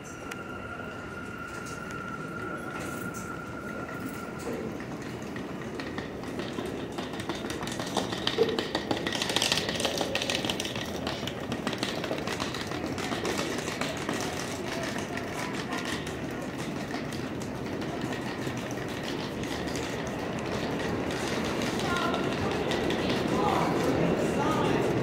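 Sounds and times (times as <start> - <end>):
crowd voices: 0.0 - 25.0
subway train rumble: 0.0 - 25.0
suitcase wheels clicking on tiles: 5.0 - 23.4.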